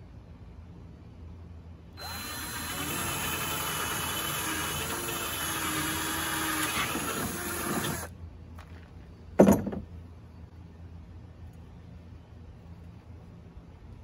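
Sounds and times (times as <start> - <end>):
cordless drill running: 2.0 - 8.1
drill clunking down: 2.0 - 8.1.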